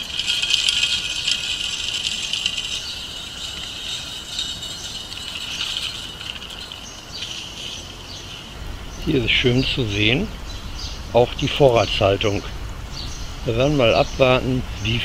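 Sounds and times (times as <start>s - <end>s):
seeds pouring into feeder: 0.0s - 8.6s.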